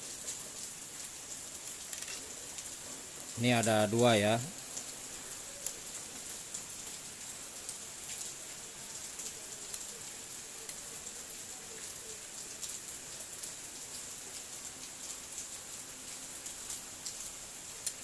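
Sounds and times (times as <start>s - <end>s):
steady high hiss: 0.8s - 14.2s.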